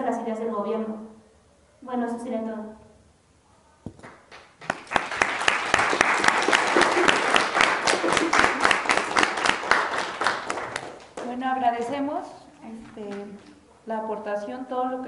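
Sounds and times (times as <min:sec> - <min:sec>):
audience applauding: 0:04.0 - 0:11.3.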